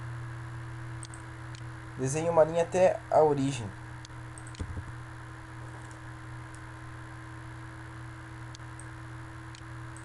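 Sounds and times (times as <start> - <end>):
electrical hum and hiss: 0.0 - 10.0
computer mouse clicks: 1.0 - 1.7, 4.4 - 4.8, 5.8 - 6.6.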